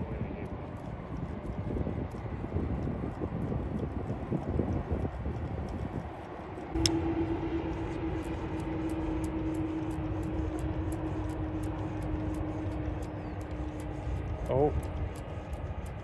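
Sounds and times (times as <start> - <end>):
low rumble: 0.0 - 16.0
motor humming: 6.6 - 16.0.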